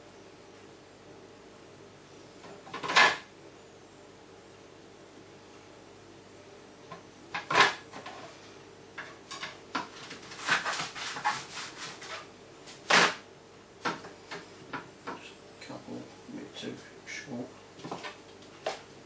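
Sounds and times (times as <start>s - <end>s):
equipment and bowls clattering on table: 2.4s - 3.2s, 6.9s - 8.4s, 9.0s - 12.3s, 17.8s - 18.9s.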